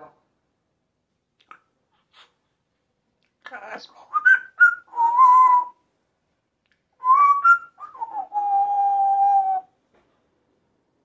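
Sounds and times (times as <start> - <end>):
parrot whistling: 4.1 - 5.8, 7.0 - 9.7.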